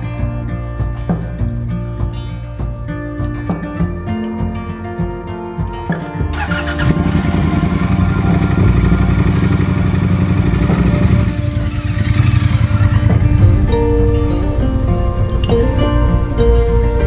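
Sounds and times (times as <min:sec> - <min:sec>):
motorcycle engine throbbing: 0:06.3 - 0:17.0.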